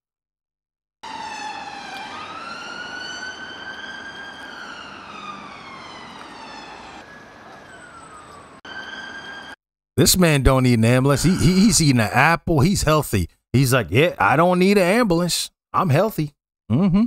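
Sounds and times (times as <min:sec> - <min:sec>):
ambulance siren wailing: 0:01.0 - 0:09.6, 0:11.1 - 0:11.8
street traffic: 0:01.0 - 0:09.6.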